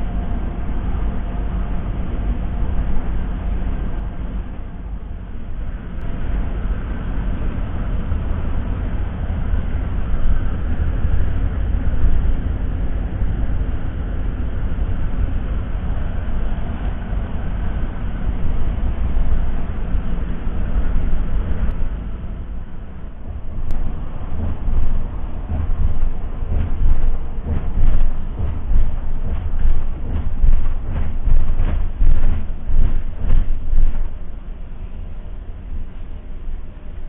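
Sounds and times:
diesel bus engine rumble: 0:00.0 - 0:37.0
road noise: 0:11.6 - 0:35.8.

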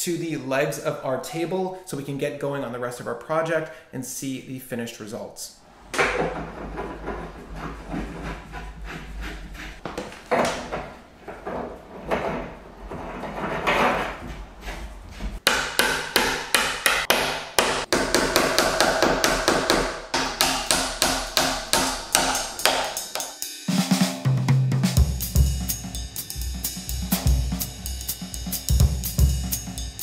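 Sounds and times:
irregular knocking and handling: 0:05.9 - 0:23.0.

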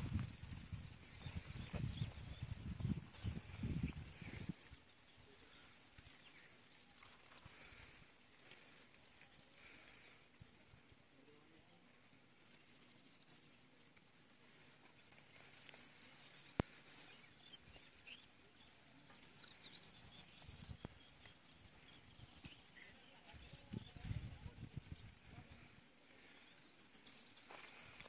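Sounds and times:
faint bird chirps: 0:00.0 - 0:08.0, 0:14.6 - 0:28.0.

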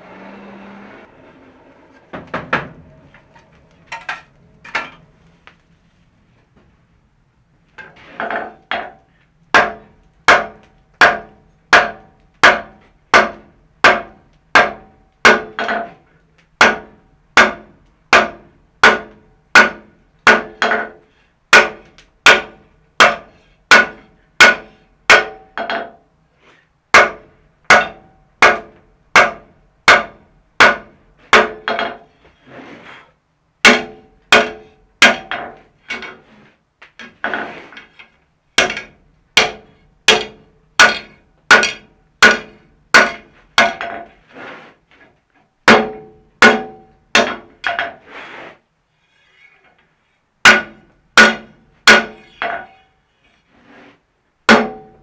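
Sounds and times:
hammer striking hot steel: 0:08.2 - 0:16.0, 0:16.6 - 0:21.0, 0:21.6 - 0:26.0, 0:27.0 - 0:32.1, 0:33.6 - 0:36.2, 0:38.6 - 0:44.1, 0:45.7 - 0:48.0, 0:50.5 - 0:52.8, 0:54.5 - 0:55.0.

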